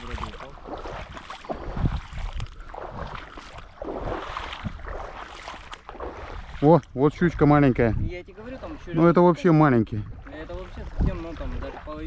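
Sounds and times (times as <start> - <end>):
water lapping in shallows: 0.0 - 12.0
wind buffeting microphone: 0.0 - 12.0.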